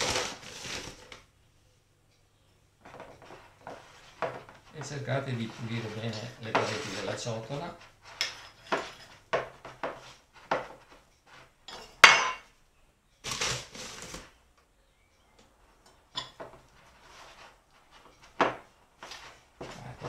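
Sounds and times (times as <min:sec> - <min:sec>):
spoon scraping glass bowl: 0:04.8 - 0:09.2.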